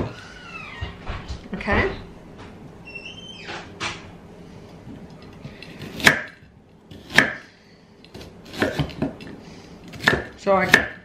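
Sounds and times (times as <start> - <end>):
knife chopping on wooden board: 5.8 - 7.5, 8.1 - 9.3, 9.9 - 11.0.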